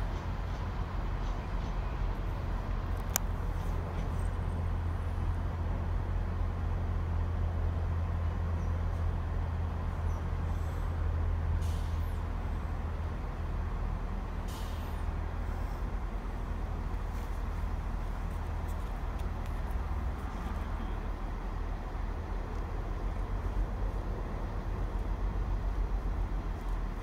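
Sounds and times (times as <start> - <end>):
train engine humming: 0.0 - 27.0
short air hisses: 11.6 - 12.2, 14.4 - 15.9.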